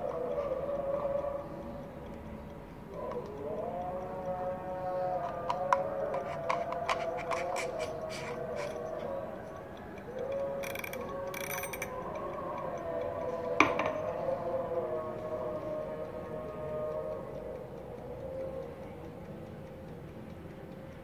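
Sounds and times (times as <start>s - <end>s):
clockwork timer clicking: 0.0s - 21.0s.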